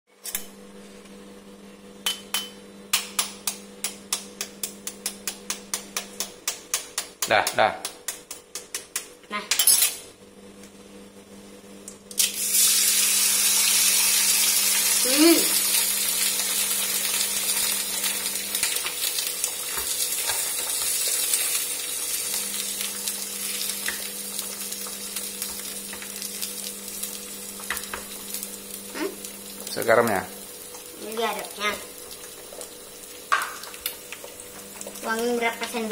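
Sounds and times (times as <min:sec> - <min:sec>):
egg sizzling in oil: 0:12.1 - 0:35.9.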